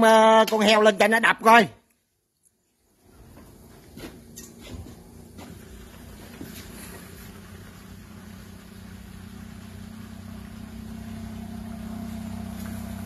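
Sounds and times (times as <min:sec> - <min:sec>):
motor humming: 0:03.1 - 0:13.0.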